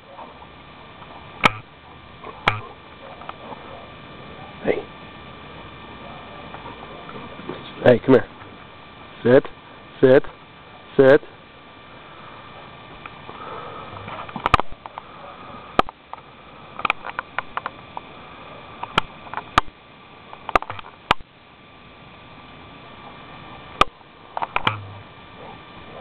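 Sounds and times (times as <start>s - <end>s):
sharp taps: 1.4s - 1.7s, 2.5s - 2.7s.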